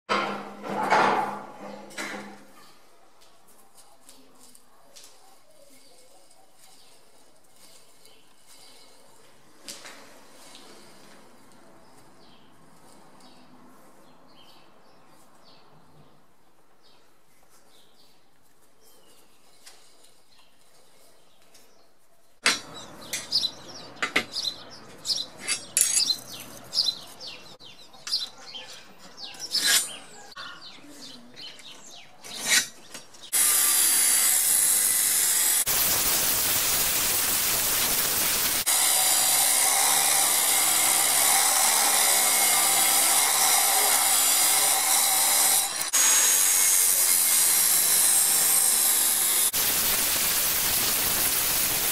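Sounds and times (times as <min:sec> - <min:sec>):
angle grinder cutting steel: 0:33.3 - 0:51.9.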